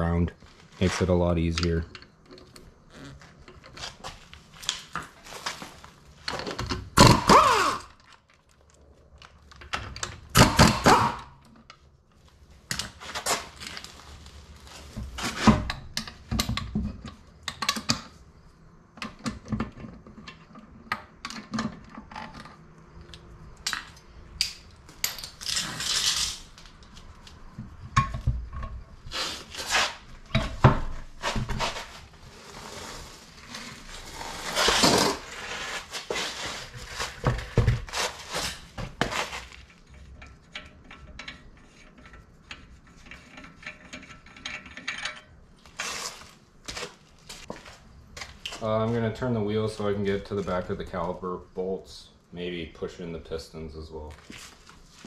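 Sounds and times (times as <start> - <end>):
metal tool clanking: 39.8 - 45.4.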